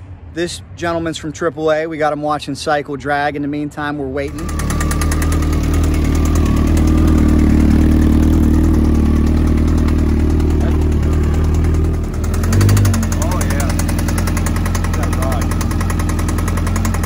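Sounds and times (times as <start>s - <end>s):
motorcycle engine idling with knock: 4.3s - 17.0s
motorcycle engine revving: 4.3s - 17.0s.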